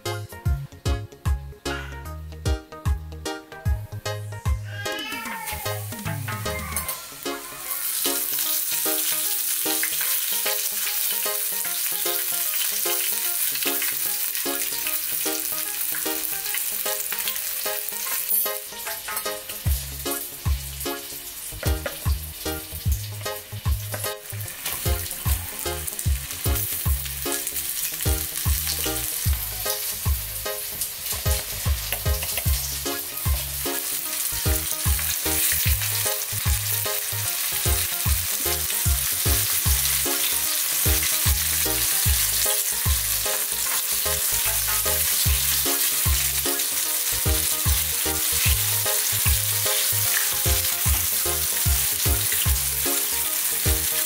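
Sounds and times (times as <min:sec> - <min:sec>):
background music with bass beat: 0:00.0 - 0:04.8, 0:05.6 - 0:07.4, 0:19.2 - 0:27.3, 0:28.0 - 0:40.2, 0:40.9 - 0:43.3, 0:50.4 - 0:53.9
fish frying in oil: 0:06.4 - 0:54.0.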